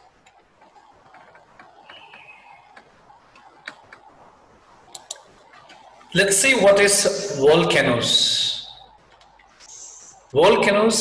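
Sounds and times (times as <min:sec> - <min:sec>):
faint clicks: 0:04.9 - 0:05.9.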